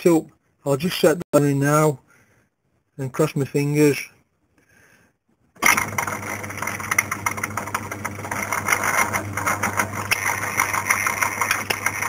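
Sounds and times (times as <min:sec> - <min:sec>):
lathe motor humming: 0:05.7 - 0:12.0
turns counter clicking rapidly: 0:06.6 - 0:12.0.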